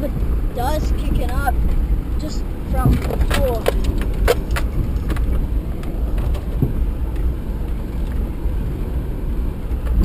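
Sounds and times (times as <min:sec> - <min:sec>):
car engine and tyres rumbling: 0:00.0 - 0:10.0.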